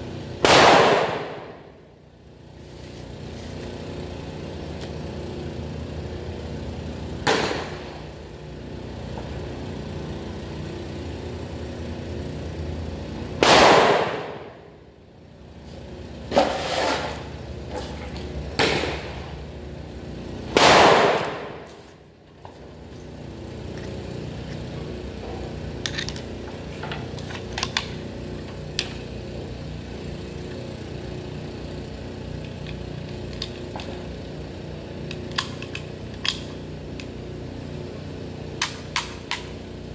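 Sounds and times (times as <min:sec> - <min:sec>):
gunshots: 0:00.4 - 0:01.4, 0:13.4 - 0:14.4, 0:20.6 - 0:21.5
rifle handling clicks: 0:35.1 - 0:37.1.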